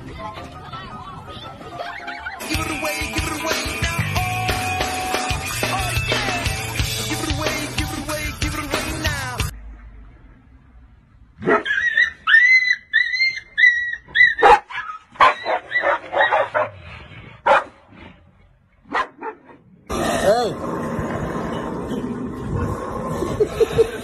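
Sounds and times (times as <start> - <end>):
dog crying: 11.4 - 16.5
dog harsh calls: 11.4 - 16.8.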